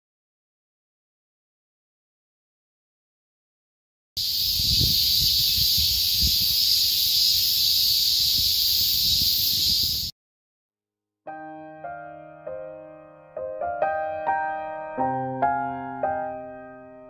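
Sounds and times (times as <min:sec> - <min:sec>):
cicadas buzzing: 0:04.2 - 0:10.1
piano music: 0:11.3 - 0:17.0.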